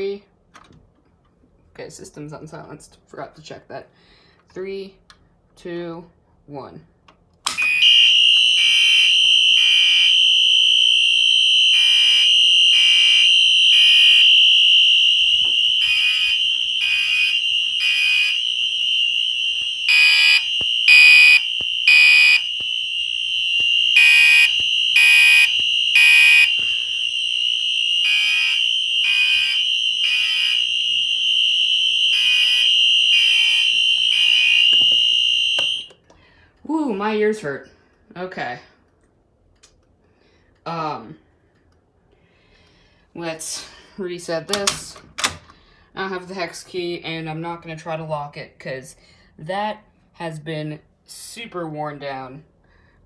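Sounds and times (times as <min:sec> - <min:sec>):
fire alarm horns beeping: 0:07.5 - 0:36.0
fire alarm horn continuous tone: 0:07.6 - 0:36.0.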